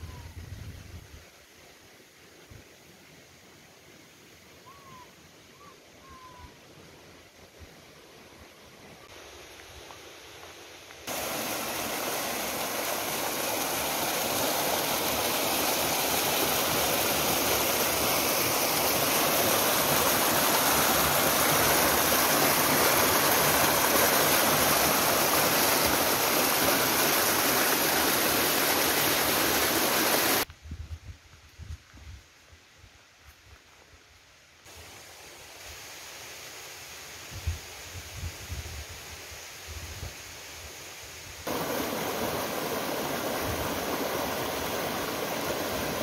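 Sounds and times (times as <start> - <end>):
water pouring rush: 11.1 - 30.4.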